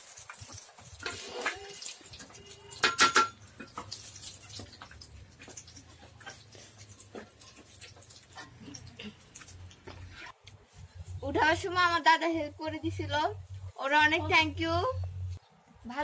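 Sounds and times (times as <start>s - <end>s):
hands squishing eggs in batter: 3.4s - 11.2s.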